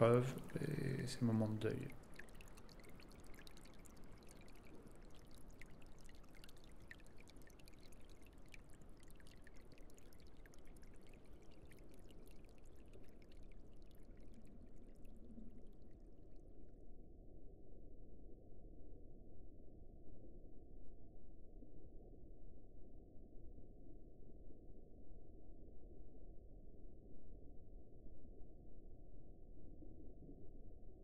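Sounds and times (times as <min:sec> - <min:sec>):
fine crackling underwater: 0:00.0 - 0:16.2
low underwater watery rush: 0:00.0 - 0:16.7.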